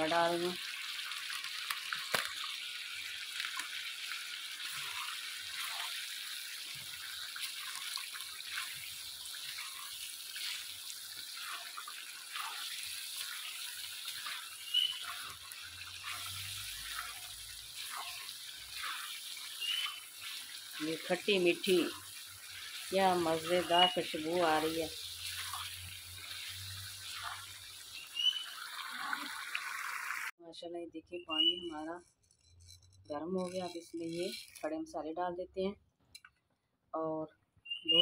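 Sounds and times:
food sizzling in a pan: 0.0 - 30.3
spatula stirring and scraping: 3.3 - 29.3, 32.2 - 34.8.

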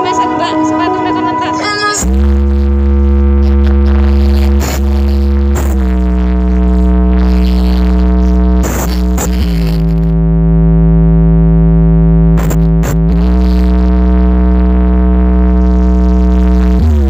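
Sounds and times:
held synth chord: 0.0 - 7.4
heavy bass: 0.0 - 17.0.

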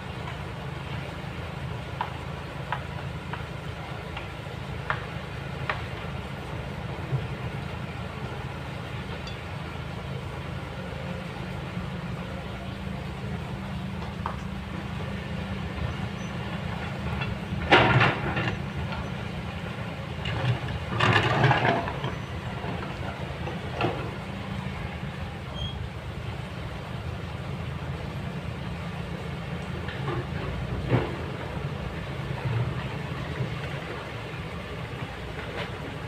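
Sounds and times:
excavator diesel engine: 0.0 - 36.0.

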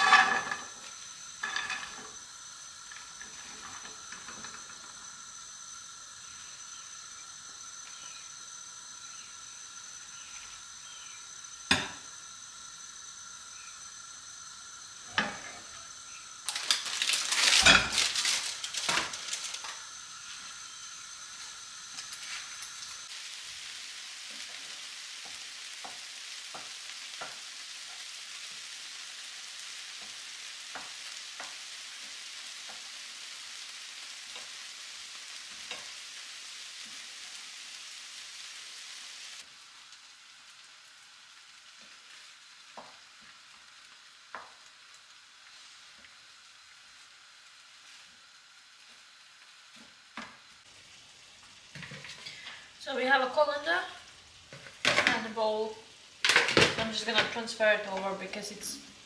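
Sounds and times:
kitchenware clattering: 0.0 - 0.8, 1.4 - 2.1, 16.5 - 19.7, 56.2 - 57.4
food sizzling in a frying pan: 0.0 - 59.0.

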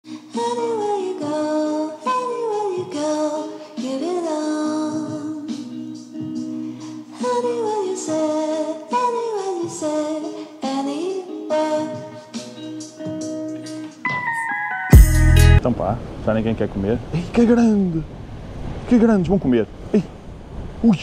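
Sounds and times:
music with singing voice: 0.0 - 15.6.

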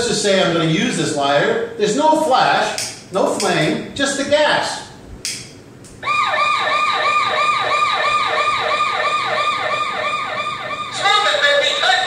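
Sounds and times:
electronic alarm siren sweeping: 6.0 - 12.0.

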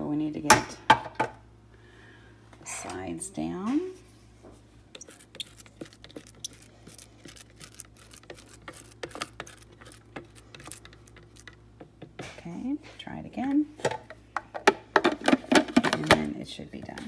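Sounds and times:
plastic spatula scraping plastic bowl: 5.0 - 11.6.

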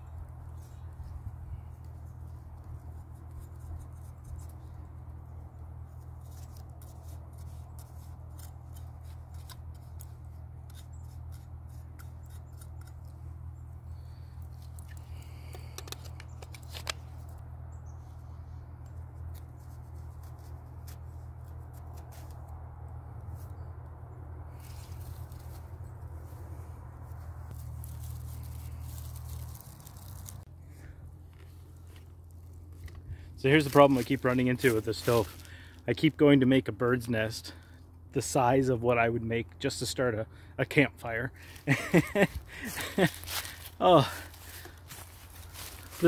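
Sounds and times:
knife scraping tinder: 6.3 - 13.2
fibres pulled apart by hand: 14.6 - 17.4, 27.5 - 30.4.

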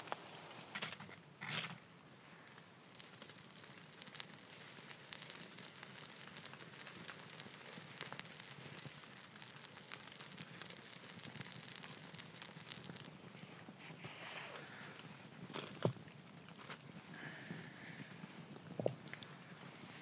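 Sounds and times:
faint hiss: 0.0 - 20.0
fire crackling: 0.0 - 20.0.

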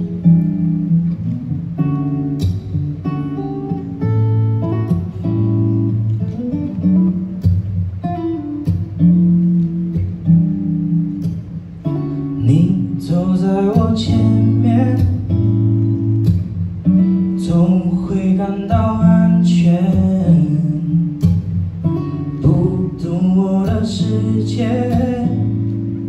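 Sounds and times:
acoustic guitar strumming chords: 0.0 - 26.0
man singing: 12.4 - 15.5, 17.4 - 21.4, 22.4 - 25.8.

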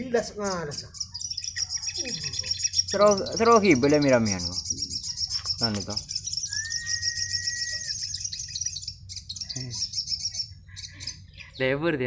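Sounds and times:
birds twittering: 0.0 - 12.0
whistled note: 6.5 - 7.9.

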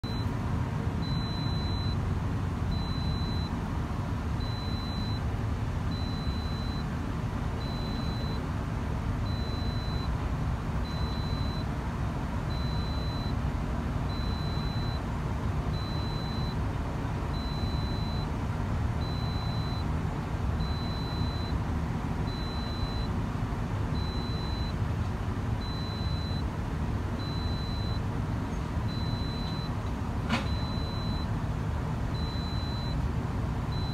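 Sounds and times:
excavator diesel engine rumbling: 0.0 - 33.9
high beep: 1.0 - 2.0, 9.3 - 10.1, 10.9 - 11.6, 19.0 - 19.8, 22.3 - 23.1, 27.2 - 28.0, 28.9 - 29.7, 32.2 - 33.0.

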